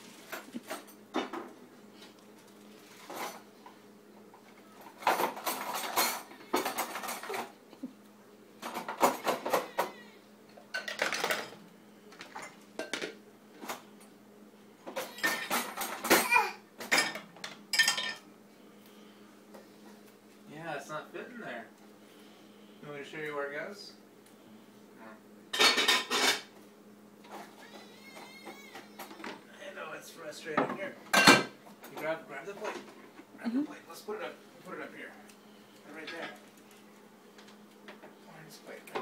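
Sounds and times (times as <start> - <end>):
dishes and cutlery clattering: 5.0 - 7.5, 10.7 - 11.6, 14.9 - 18.2, 25.5 - 26.5, 30.6 - 32.9.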